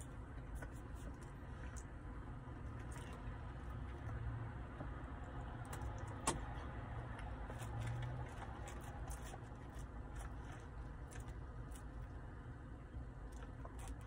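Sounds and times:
low hum in car: 0.0 - 14.0
chewing: 7.1 - 12.2, 13.2 - 14.0.

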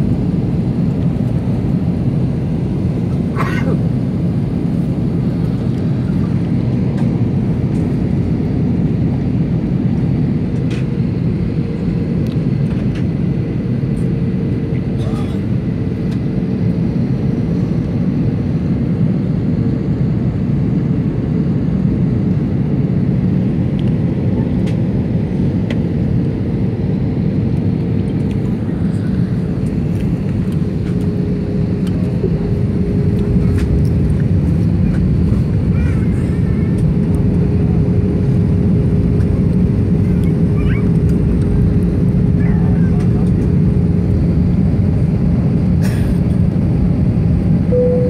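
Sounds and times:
jet engine drone in cabin: 0.0 - 48.0
faint steady hum: 47.7 - 48.0.

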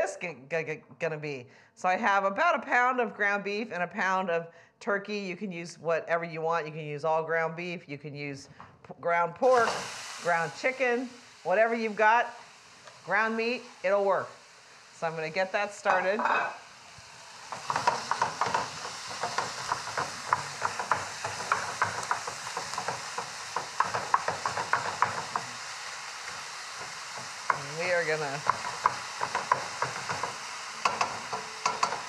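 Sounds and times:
meat sizzling in a skillet: 9.4 - 32.0
wooden spoon scraping a pan: 15.4 - 32.0.

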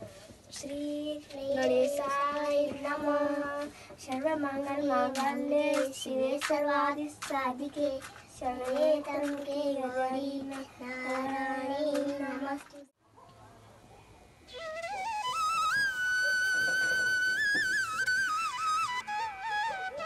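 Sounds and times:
girl singing devotional song: 0.5 - 12.9.

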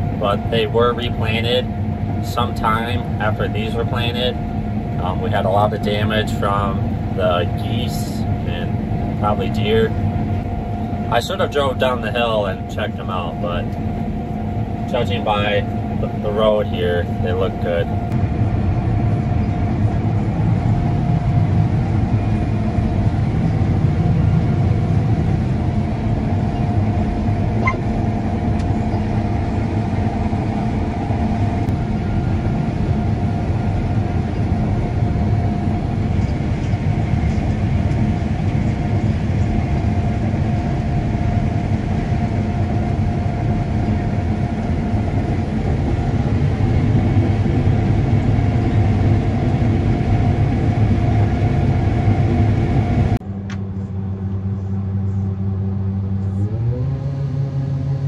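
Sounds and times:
combine harvester running: 0.0 - 58.0.

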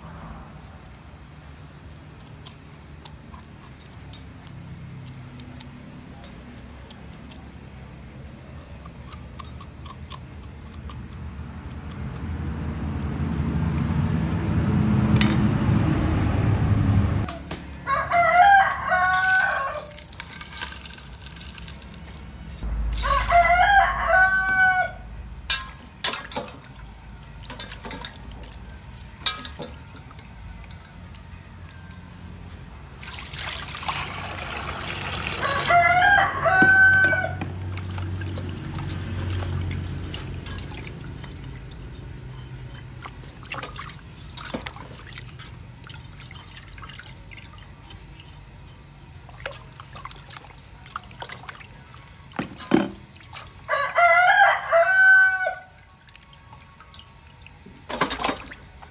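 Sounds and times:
rooster crowing: 17.2 - 20.1, 22.9 - 25.4, 34.0 - 37.7, 53.5 - 55.9
water pouring into steel bowl: 33.0 - 35.7.

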